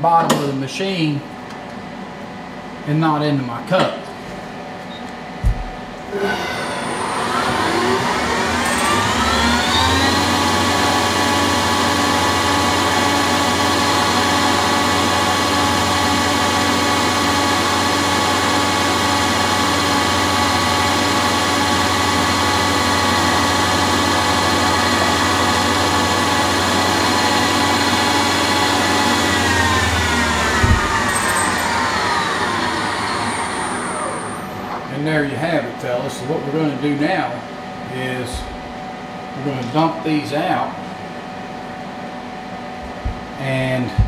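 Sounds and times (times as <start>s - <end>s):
lathe spindle whining: 6.0s - 34.9s.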